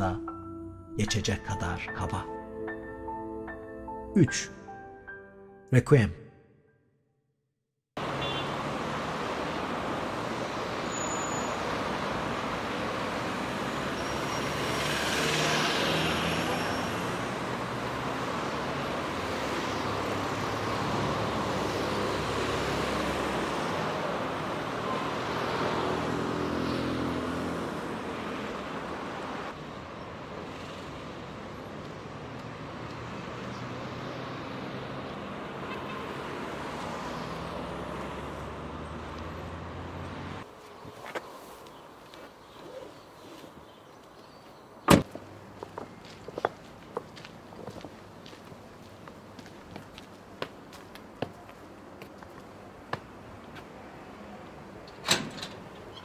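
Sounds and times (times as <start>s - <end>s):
cars driving past: 8.0s - 42.4s
vehicle passing close: 11.5s - 29.6s, 30.4s - 40.5s.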